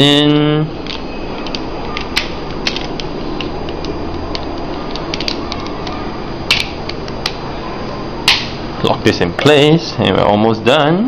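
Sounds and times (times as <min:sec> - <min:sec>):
plastic toy parts clicking: 0:00.8 - 0:07.4.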